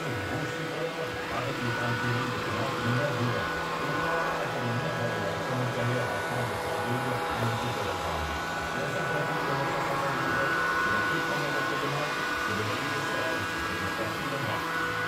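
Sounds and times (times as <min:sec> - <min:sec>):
high whine: 0:00.0 - 0:15.0
robot vacuum motor whir: 0:00.0 - 0:15.0.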